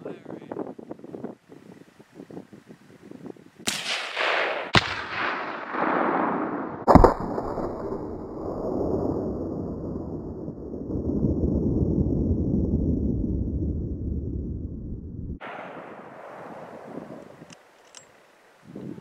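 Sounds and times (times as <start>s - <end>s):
gunshots: 3.7s - 8.0s, 15.4s - 17.2s
steady low noise: 7.1s - 17.4s.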